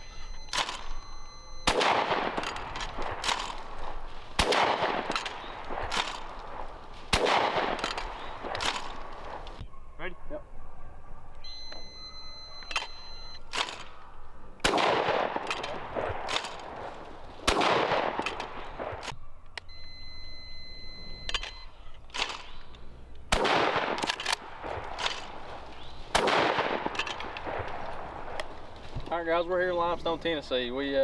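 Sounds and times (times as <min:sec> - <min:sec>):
shotgun shots with echo: 0:01.6 - 0:09.6, 0:14.6 - 0:19.1, 0:23.3 - 0:28.4.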